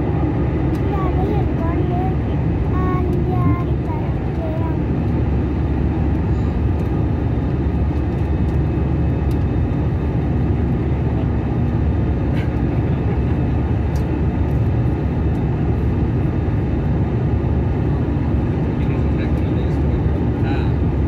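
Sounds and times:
airliner cabin engine rush: 0.0 - 21.0.

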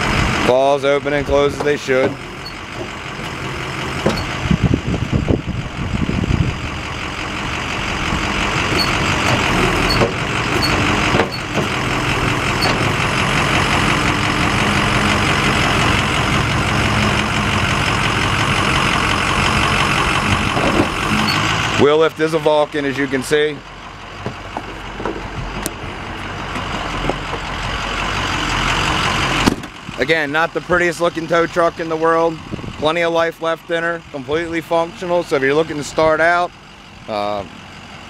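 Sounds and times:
diesel truck engine running: 0.0 - 38.0
hydraulics raising wheel lift: 0.0 - 38.0
metal clunk: 8.7 - 11.8, 12.6 - 13.0.

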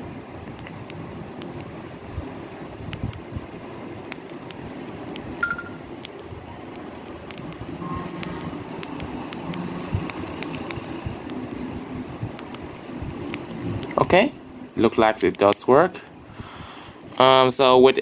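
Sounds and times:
phone key beep: 5.4 - 5.9
phone menu tone: 5.4 - 5.9.

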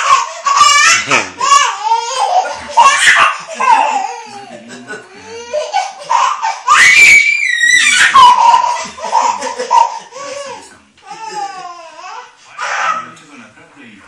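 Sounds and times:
baby laughing: 0.0 - 13.1
people laughing: 1.0 - 1.4, 2.2 - 6.2, 8.1 - 11.8.

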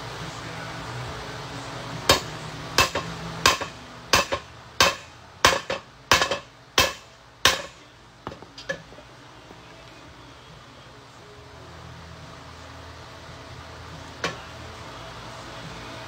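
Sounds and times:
hammer striking metal: 2.1 - 7.8.

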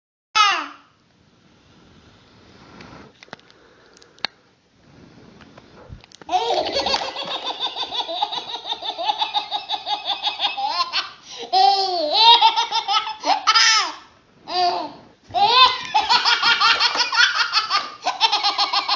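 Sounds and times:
baby laughing: 6.3 - 18.9.

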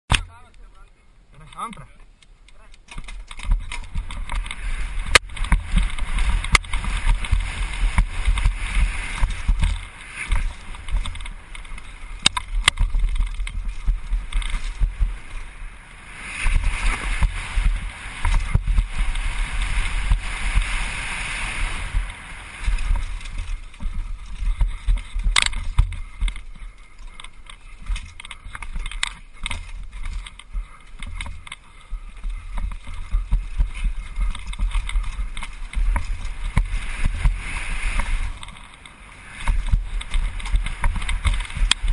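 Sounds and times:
bike rattling over dirt trail: 1.4 - 41.9
wind buffeting microphone: 2.6 - 41.9
sharp knocks from trail hits: 2.9 - 15.4.

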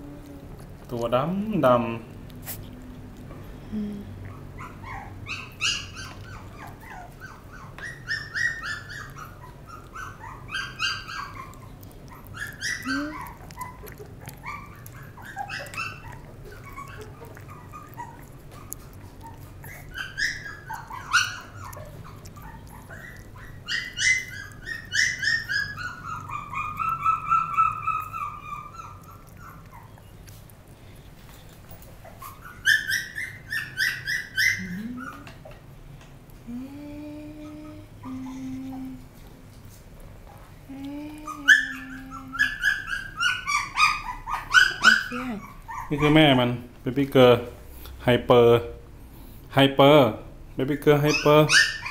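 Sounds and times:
puppy squealing and whining: 4.3 - 30.3, 31.4 - 35.6, 41.2 - 46.6, 50.9 - 51.9.

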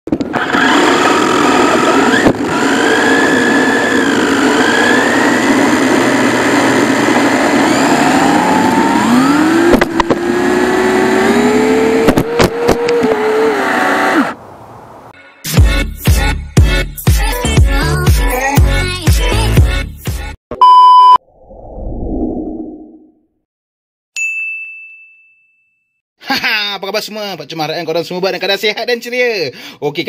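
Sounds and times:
electric motor whining: 0.3 - 14.4.

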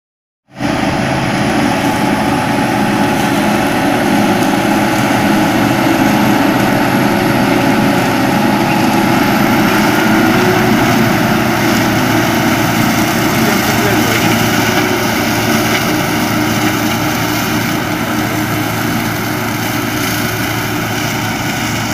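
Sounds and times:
tractor diesel engine running: 0.5 - 21.9
shredder chopping grass: 0.6 - 21.9.

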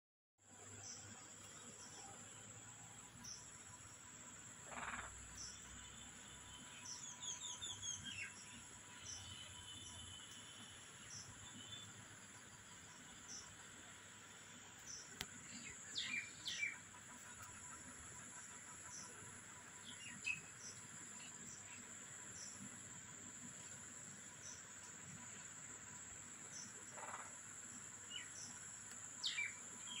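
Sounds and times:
birds chirping: 3.1 - 23.2, 26.4 - 30.0.

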